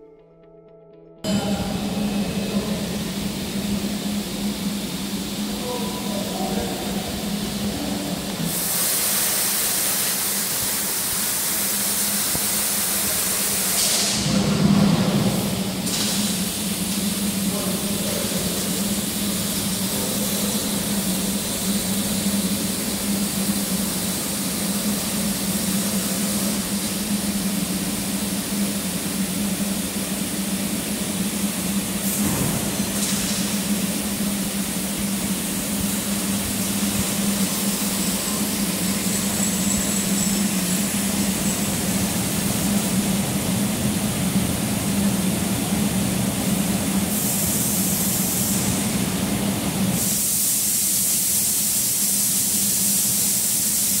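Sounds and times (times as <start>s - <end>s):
laser cutting jet hissing: 1.8s - 14.4s.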